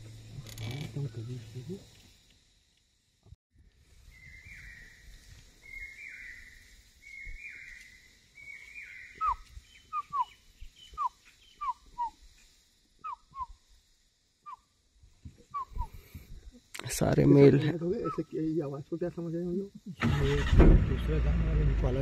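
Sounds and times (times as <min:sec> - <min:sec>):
animal alarm calls: 0:08.8 - 0:12.2, 0:13.0 - 0:13.5, 0:15.5 - 0:16.0, 0:18.0 - 0:18.3.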